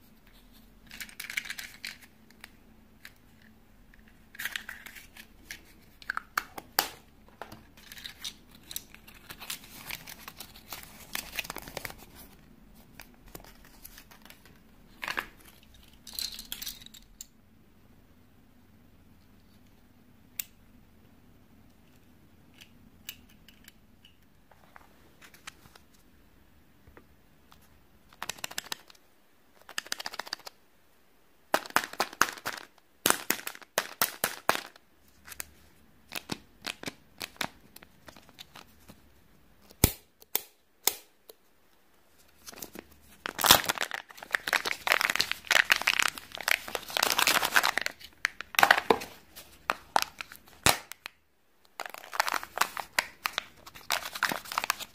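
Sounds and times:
plastic wrapper crinkling and tearing: 7.8s - 16.6s, 42.3s - 54.9s.

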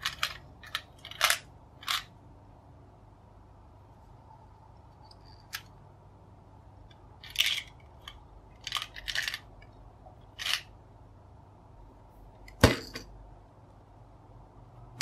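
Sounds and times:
toy gumball machine clattering: 0.0s - 2.2s, 7.2s - 10.8s.

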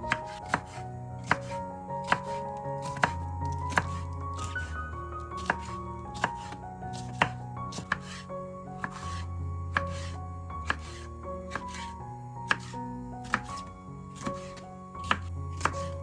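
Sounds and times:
soft background music: 0.0s - 16.0s
knife chopping on cutting board: 0.1s - 4.8s, 5.4s - 8.2s, 8.8s - 11.9s, 12.5s - 16.0s.

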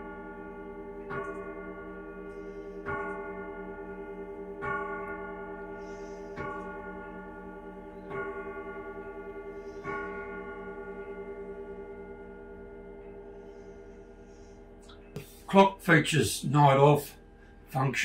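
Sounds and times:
grandfather clock striking: 0.0s - 13.9s.

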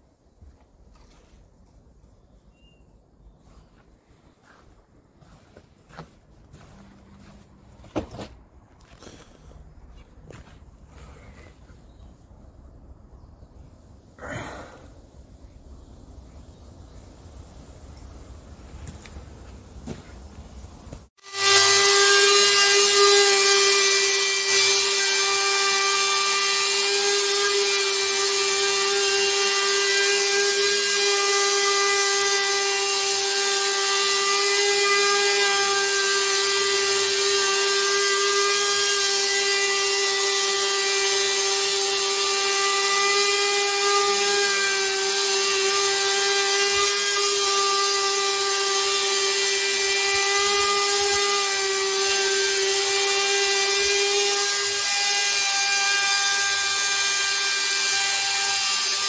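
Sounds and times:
router whining cutting wood: 21.2s - 59.0s.

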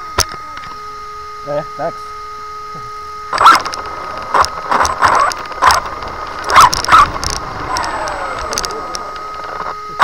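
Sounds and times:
rc car motor whining: 0.0s - 10.0s.

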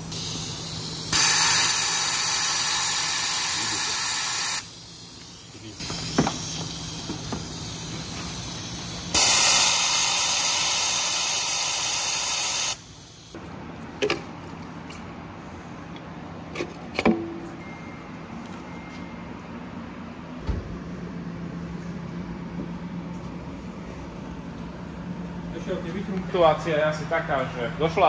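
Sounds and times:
compressed air hissing: 0.0s - 13.4s.

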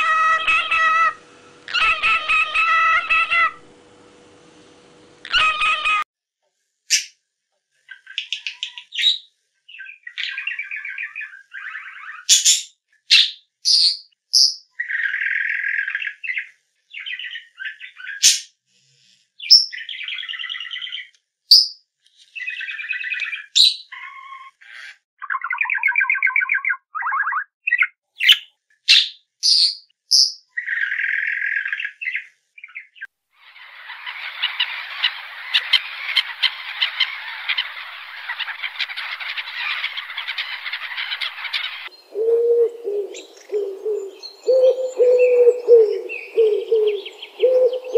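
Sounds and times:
pigeons cooing: 0.0s - 3.7s, 5.2s - 6.0s, 34.0s - 47.9s
chicks peeping and chirping: 33.5s - 42.1s.

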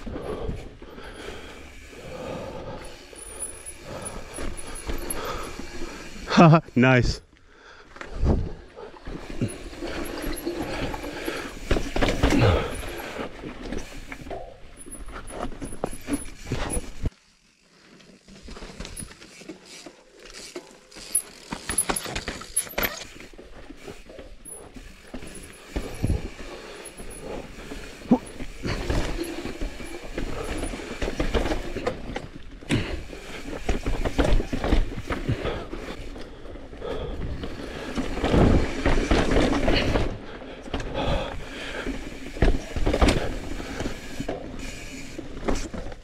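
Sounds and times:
bike rattling: 0.0s - 7.1s, 7.7s - 46.0s
bike tyres rolling: 0.0s - 46.0s.

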